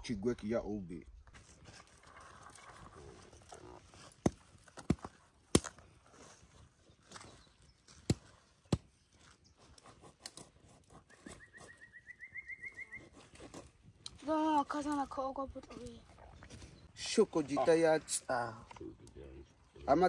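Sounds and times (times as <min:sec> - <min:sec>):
bird trilling: 0:11.1 - 0:13.2.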